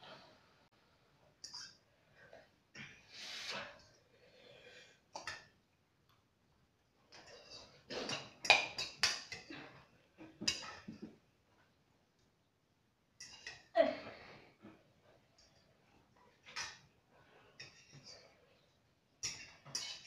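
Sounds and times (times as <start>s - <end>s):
cutlery clicking on ceramic bowls: 8.1s - 9.5s, 10.4s - 11.1s, 13.2s - 13.7s, 19.2s - 20.0s.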